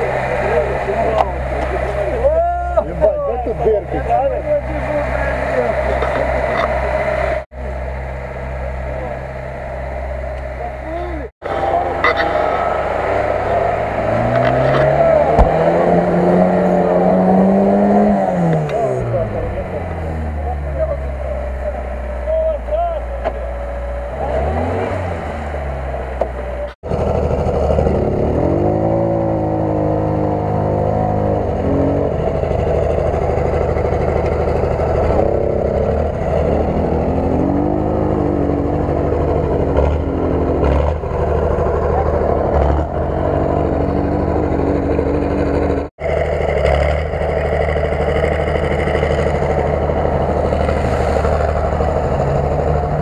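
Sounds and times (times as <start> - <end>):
off-road vehicle engine revving: 0.0 - 53.0
quad bike engine revving: 10.8 - 22.2, 23.8 - 25.8, 26.6 - 53.0.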